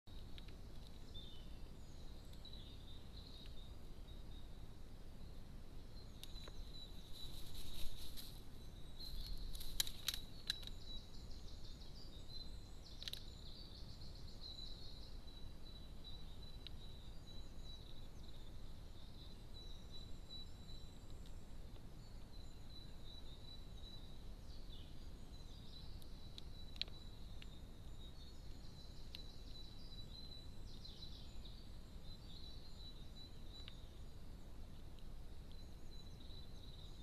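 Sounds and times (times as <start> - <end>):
steady high-pitched whine: 0.1 - 37.0
bird wings fluttering: 7.1 - 8.4.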